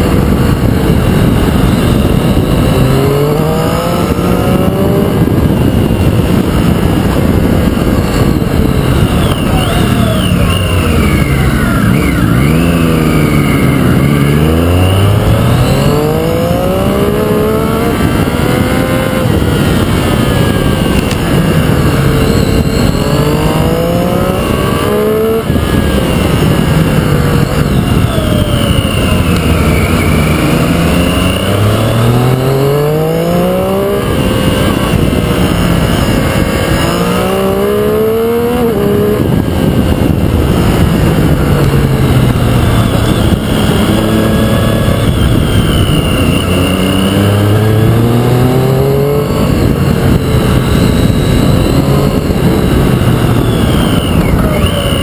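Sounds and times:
motorcycle engine revving: 0.0 - 55.0
rush of wind noise: 0.0 - 55.0.

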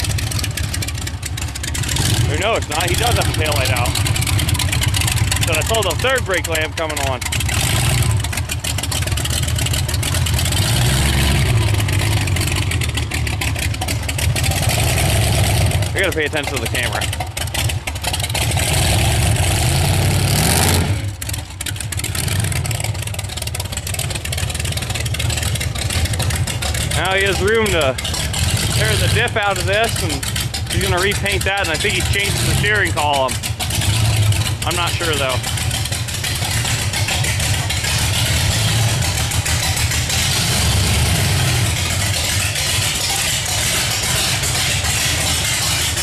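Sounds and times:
car engine revving: 0.0 - 46.0.

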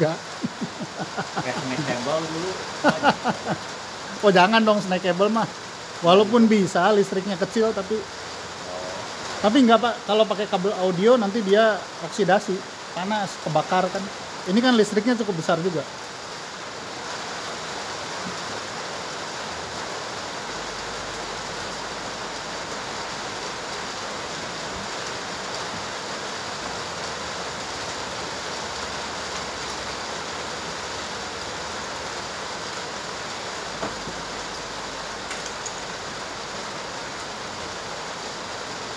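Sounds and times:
faint knock: 33.8 - 34.2.

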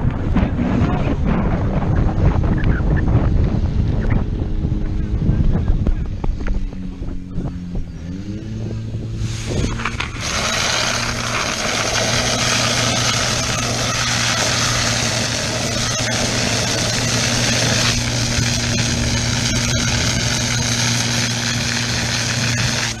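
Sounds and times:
pump engine running at high revs: 0.0 - 23.0
water jets spraying: 9.1 - 23.0.

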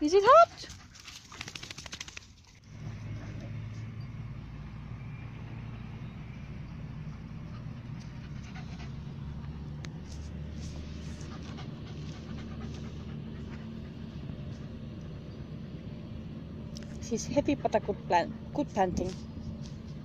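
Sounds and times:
dog panting: 0.1 - 1.5, 7.0 - 9.6, 11.0 - 14.7, 17.4 - 18.6.

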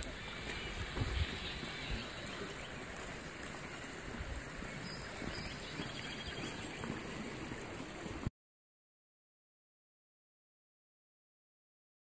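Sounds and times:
creek rushing: 0.0 - 8.3.

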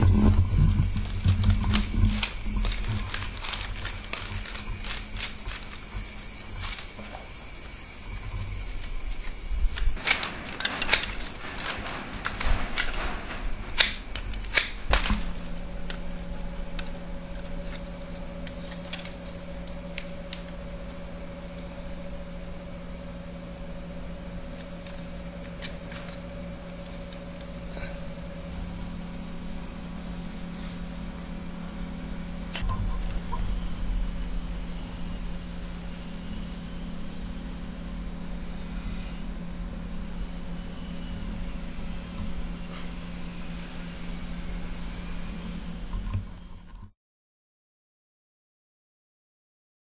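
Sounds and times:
bamboo strips clicking and snapping: 0.0 - 21.7, 24.4 - 28.3
steady high hiss: 0.0 - 46.6
steady low hum: 0.0 - 46.9.

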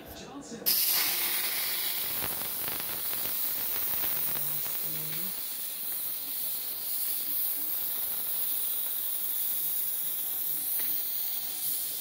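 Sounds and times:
pressure cooker steam hissing: 0.7 - 12.0.

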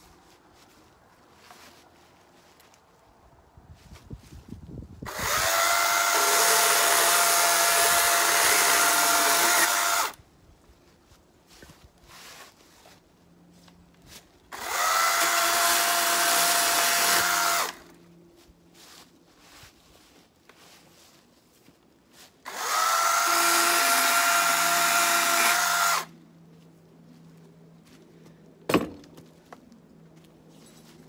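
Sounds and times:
electric chainsaw motor whine: 5.1 - 10.2, 14.5 - 17.9, 22.5 - 26.1.

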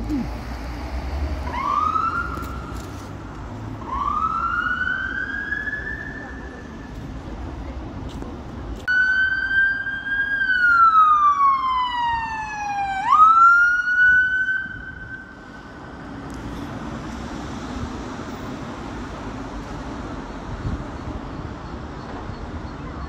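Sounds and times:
traffic noise: 0.0 - 23.0
emergency vehicle siren: 1.4 - 2.9, 3.7 - 7.0, 8.9 - 16.0.

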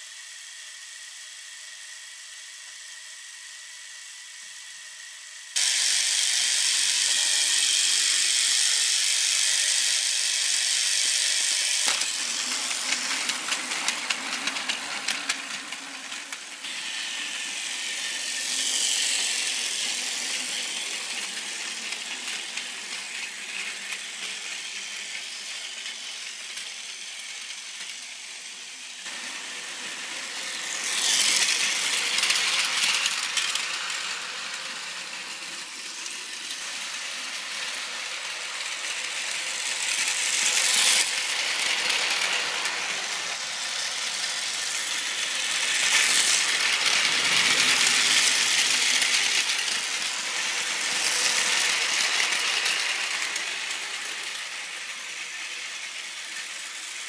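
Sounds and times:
toy train motor whirring: 0.0 - 57.0
wheels rattling over track joints: 11.8 - 16.7, 39.6 - 54.3.

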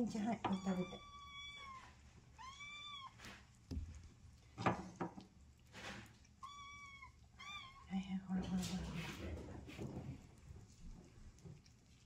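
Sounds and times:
cat meowing: 0.4 - 3.3, 6.4 - 7.9.

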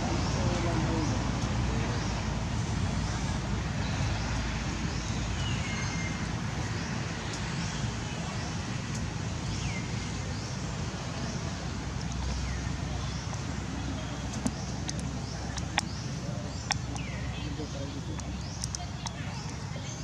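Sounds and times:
outdoor rumble and hiss: 0.0 - 20.0.

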